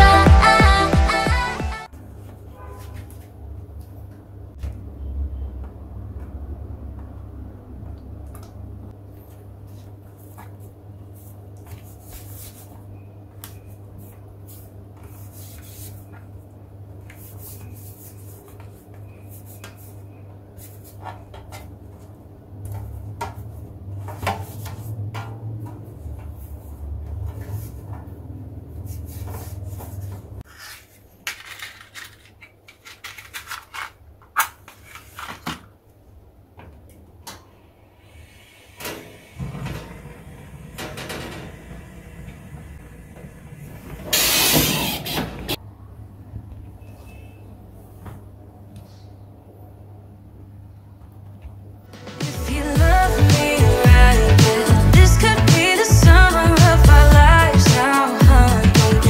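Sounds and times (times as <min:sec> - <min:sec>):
steady low hum: 0:37.8 - 0:46.2
gas burner hissing: 0:37.9 - 0:45.6.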